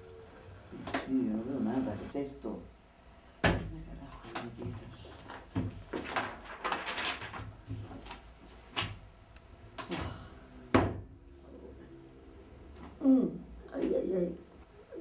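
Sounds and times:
paper rustling: 4.4s - 9.0s.

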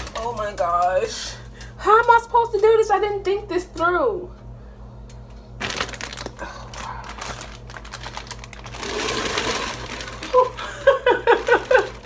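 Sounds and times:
plastic bag crinkling: 0.0s - 0.9s, 5.6s - 12.0s.

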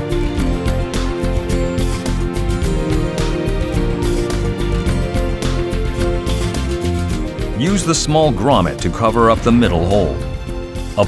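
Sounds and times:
music with a steady beat: 0.0s - 11.0s.

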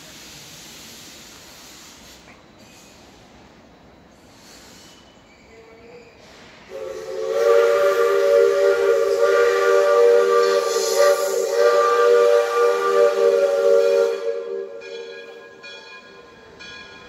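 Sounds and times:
steam whistle blast: 6.7s - 15.6s.

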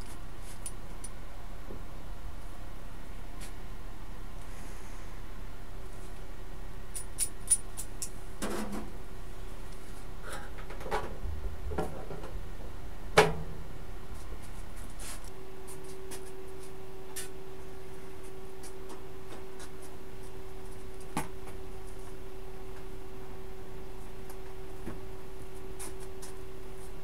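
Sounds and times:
steady hum: 0.0s - 27.0s.

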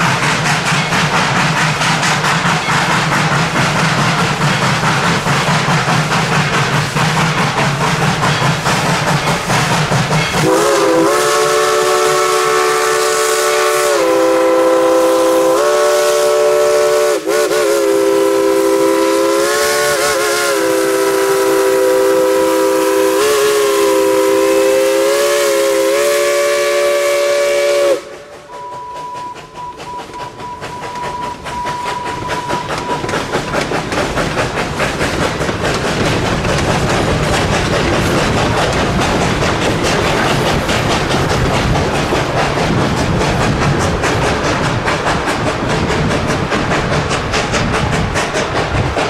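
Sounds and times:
hiss and rumble of moving train: 0.0s - 49.0s
steam locomotive whistle: 10.3s - 33.4s.

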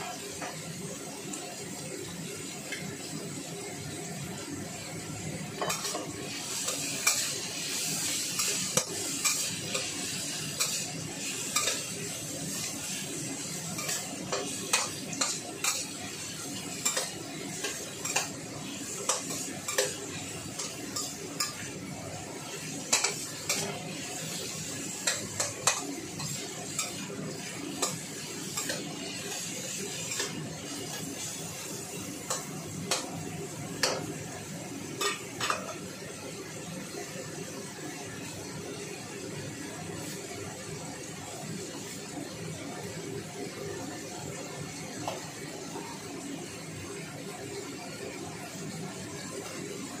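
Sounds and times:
sizzling: 0.0s - 50.0s
metal spatula scraping wok: 5.6s - 21.7s, 22.7s - 31.3s.

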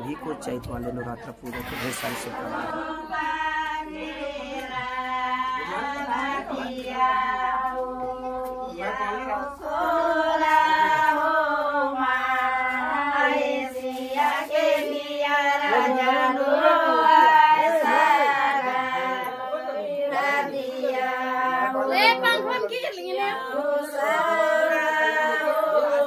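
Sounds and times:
women singing unaccompanied: 2.3s - 26.0s.

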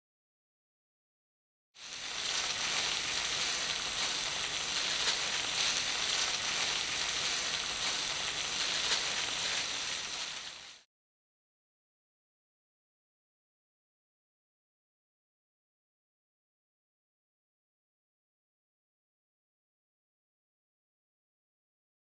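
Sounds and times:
cheese sizzling in a frying pan: 1.8s - 10.9s.

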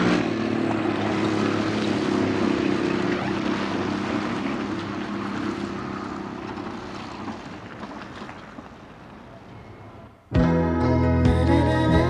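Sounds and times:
moped engine buzzing: 0.0s - 7.1s.

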